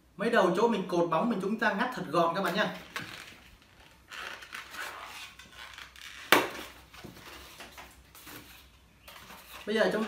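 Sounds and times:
latex balloon rubbing and rustling: 0:02.6 - 0:10.0.

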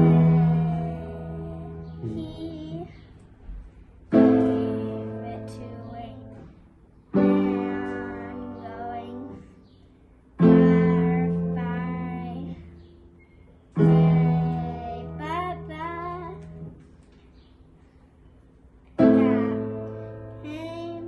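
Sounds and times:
person singing: 0:00.0 - 0:02.9
piano chords ringing: 0:00.0 - 0:09.6, 0:10.3 - 0:16.8, 0:19.0 - 0:21.0.

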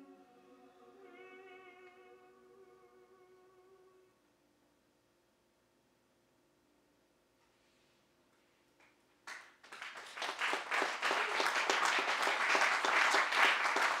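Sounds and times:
audience applause: 0:09.3 - 0:14.0.

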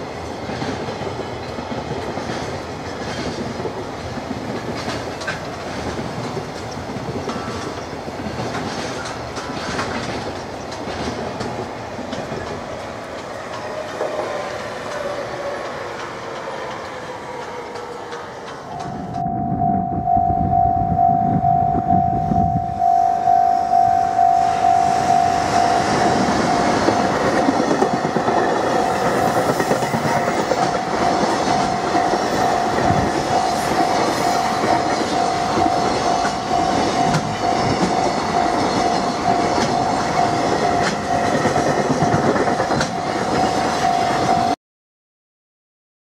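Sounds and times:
freight train passing: 0:00.0 - 0:44.6
wheels clattering over rail joints: 0:00.4 - 0:18.9, 0:25.4 - 0:44.5
pulsing high tone: 0:18.7 - 0:42.1.

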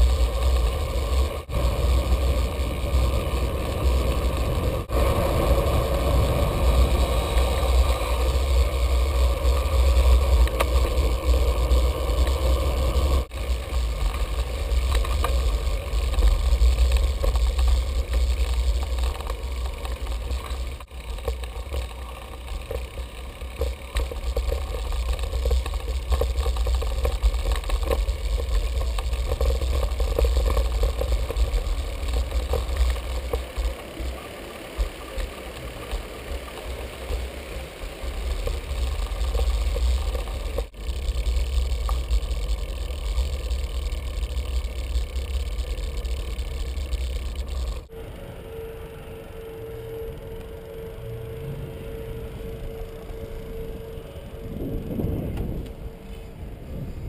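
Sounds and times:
bike clicks and rattles: 0:00.0 - 0:47.9
tyre noise on pavement: 0:00.0 - 0:48.0
wind buffeting microphone: 0:54.2 - 0:57.0.

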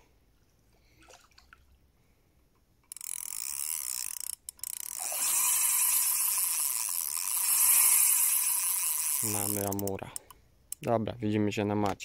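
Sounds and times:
fishing reel clicking rapidly: 0:02.9 - 0:10.8.

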